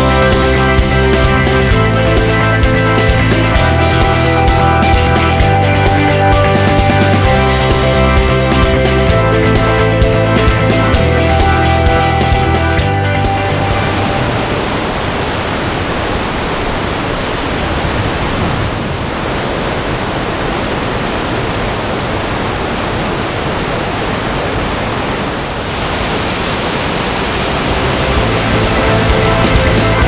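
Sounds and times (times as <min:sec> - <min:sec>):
river rushing through gorge: 0:13.3 - 0:30.0.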